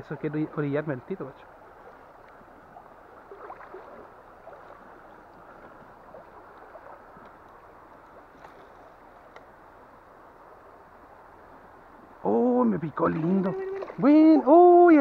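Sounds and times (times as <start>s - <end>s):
river water rushing: 0.0s - 15.0s
faint clicks: 9.3s - 9.5s.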